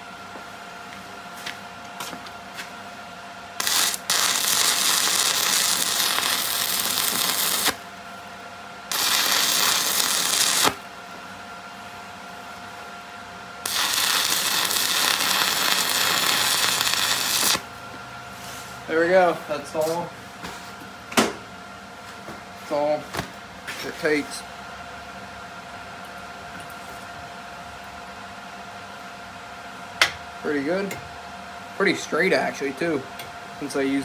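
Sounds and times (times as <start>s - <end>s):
faint steady hum: 2.2s - 18.1s
welder hissing: 3.6s - 7.8s, 8.9s - 10.8s, 13.6s - 17.6s
welder blips: 3.6s - 7.9s, 8.9s - 10.8s, 13.6s - 17.7s.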